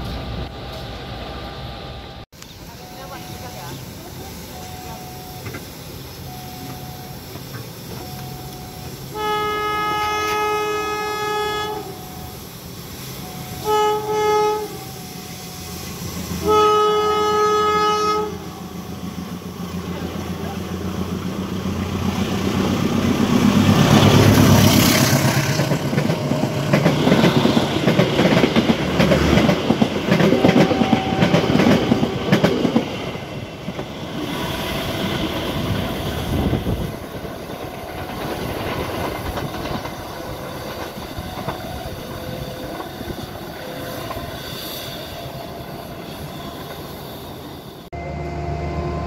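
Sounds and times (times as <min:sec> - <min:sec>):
locomotive engine rumble: 0:00.0 - 0:49.0
train wheels clattering over rail joints: 0:22.8 - 0:33.0, 0:33.7 - 0:44.3.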